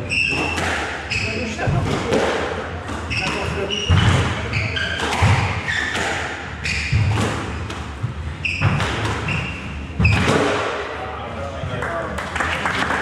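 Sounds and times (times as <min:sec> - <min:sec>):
shoes squeaking on wooden floor: 0:00.0 - 0:02.1, 0:02.9 - 0:10.4
squash ball smacking walls: 0:00.2 - 0:10.9.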